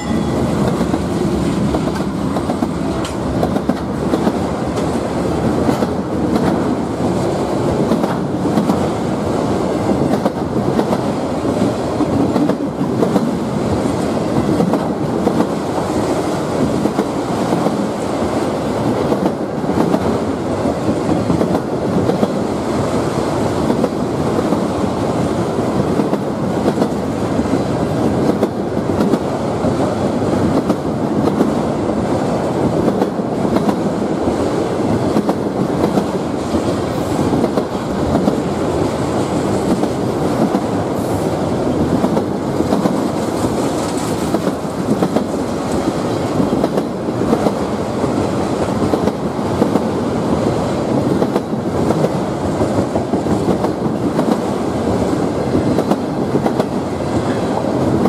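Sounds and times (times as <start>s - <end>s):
wheels clacking over rail joints: 0.0s - 9.0s, 41.7s - 50.0s
steel wheels rumbling: 0.0s - 58.0s.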